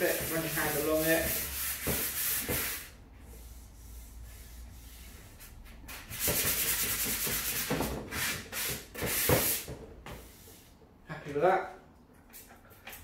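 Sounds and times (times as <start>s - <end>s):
sanding sponge scratching wood: 0.0s - 2.9s, 6.1s - 9.6s.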